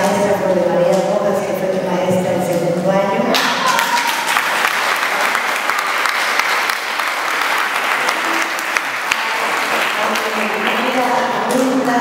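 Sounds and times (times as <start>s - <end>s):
audience applauding: 3.7s - 11.6s.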